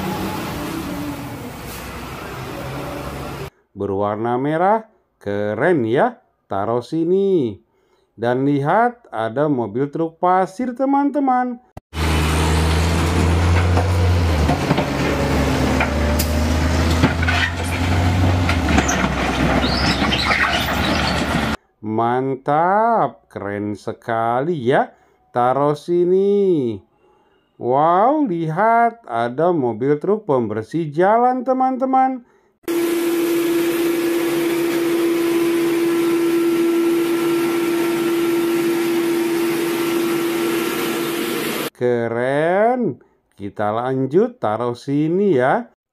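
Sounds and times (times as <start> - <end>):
diesel engine running: 0.0 - 3.5, 12.0 - 21.6, 32.7 - 41.7
rock and dirt tipping out: 16.8 - 21.6.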